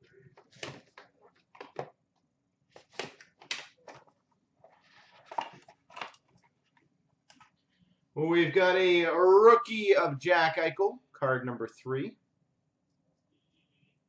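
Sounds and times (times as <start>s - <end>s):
cardboard and wrapper rustling: 2.7s - 6.8s.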